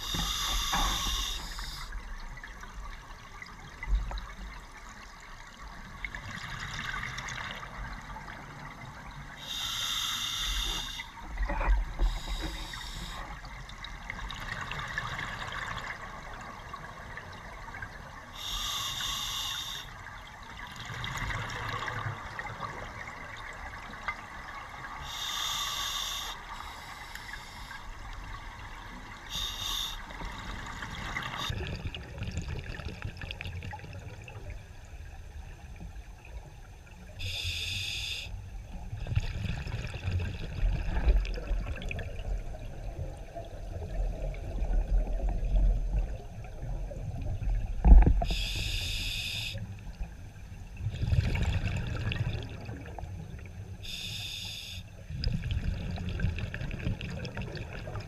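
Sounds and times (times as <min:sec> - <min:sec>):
steady underwater hiss: 0:00.0 - 0:03.2, 0:06.9 - 0:32.1, 0:33.5 - 0:41.2, 0:42.2 - 0:58.0.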